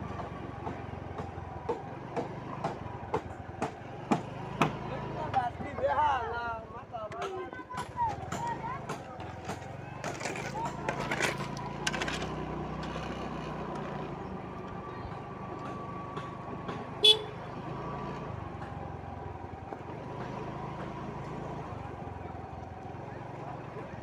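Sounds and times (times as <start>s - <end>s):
motor scooter running: 0.0s - 24.0s
scooter horn toot: 17.0s - 17.6s.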